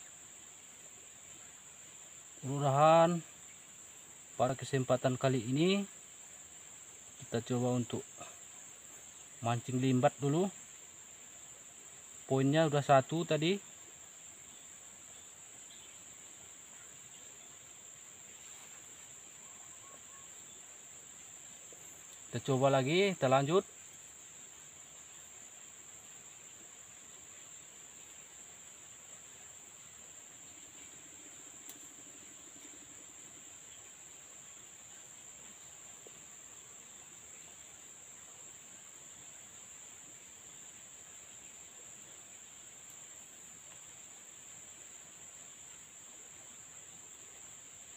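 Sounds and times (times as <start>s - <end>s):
crickets droning: 0.0s - 47.9s
insects trilling: 0.0s - 47.9s
faint click: 31.6s - 32.0s, 42.8s - 43.1s.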